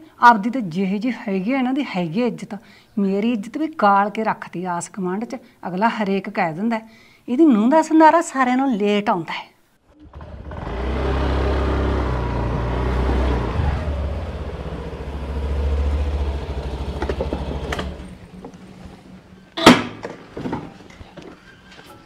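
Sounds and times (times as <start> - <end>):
vehicle engine rumbling: 9.9 - 19.6
sharp knock: 19.6 - 20.2.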